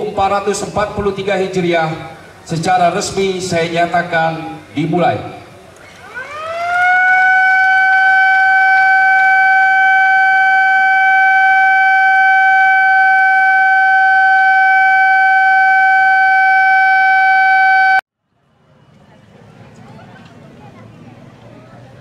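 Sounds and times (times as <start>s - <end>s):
siren steady loud tone: 6.0s - 18.0s.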